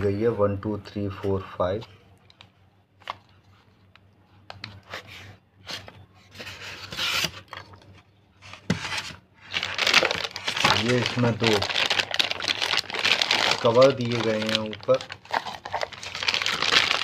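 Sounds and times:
plastic packaging rustling: 0:05.7 - 0:17.0.

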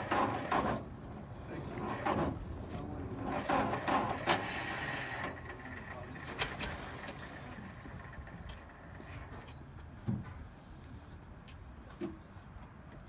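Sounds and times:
electric starter cranking engine: 0:00.0 - 0:00.9, 0:03.2 - 0:07.2.

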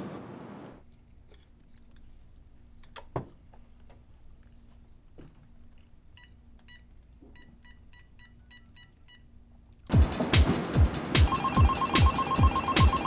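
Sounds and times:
phone keypad beeps: 0:11.3 - 0:13.0.

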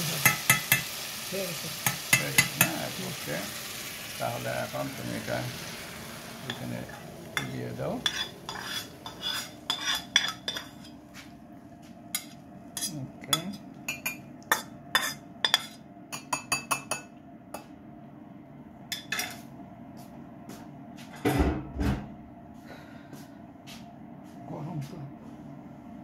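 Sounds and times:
metal spatula clinking on pan: 0:00.2 - 0:00.9, 0:07.4 - 0:10.8.

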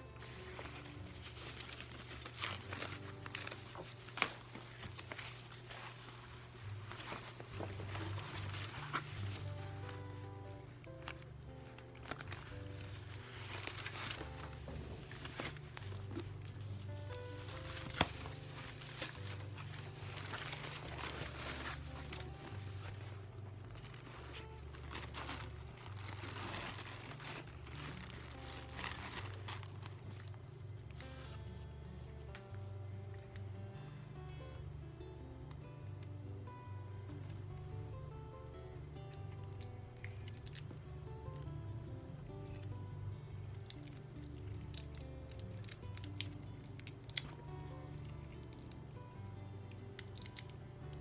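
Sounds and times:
tissue paper crinkling: 0:00.0 - 0:32.6.

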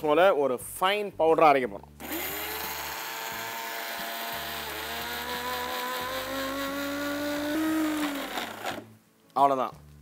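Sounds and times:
mixer grinder motor whine: 0:02.0 - 0:08.9.

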